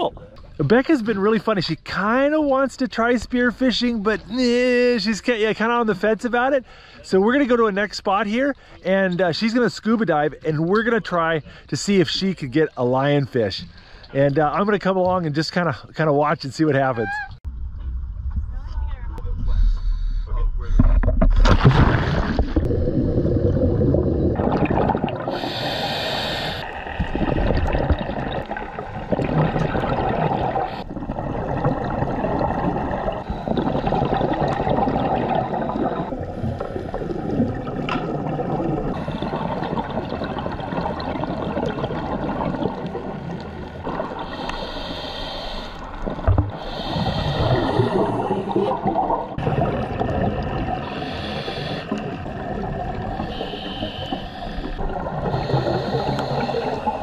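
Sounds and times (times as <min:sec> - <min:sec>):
gurgling exhaled bubbles: 0:21.3 - 0:57.0
hissing regulator inhalations: 0:25.2 - 0:27.2, 0:44.1 - 0:48.8, 0:50.8 - 0:57.0.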